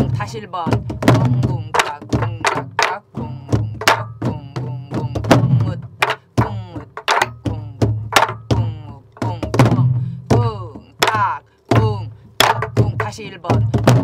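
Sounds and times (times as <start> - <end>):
barrel drums played together: 0.0 - 14.0
woman chanting: 0.0 - 14.0.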